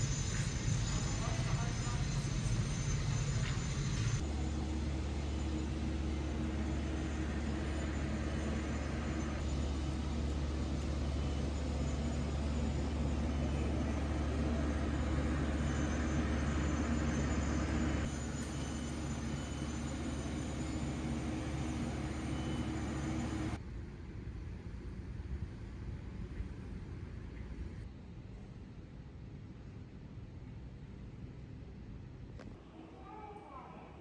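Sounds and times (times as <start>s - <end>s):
construction machinery engine rumble: 0.0s - 23.6s.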